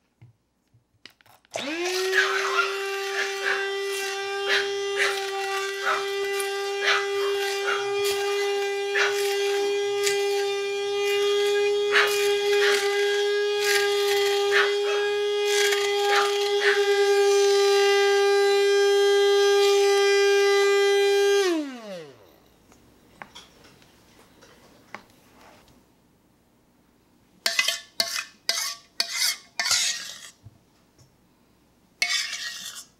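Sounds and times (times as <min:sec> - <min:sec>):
blender motor spinning down: 0:01.5 - 0:22.3
immersion blender whining: 0:01.5 - 0:22.3.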